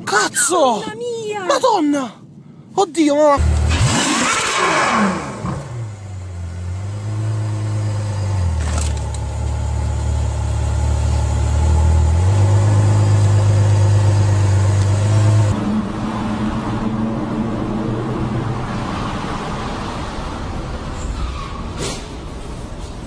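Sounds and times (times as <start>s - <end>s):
car engine at low revs: 3.4s - 18.6s.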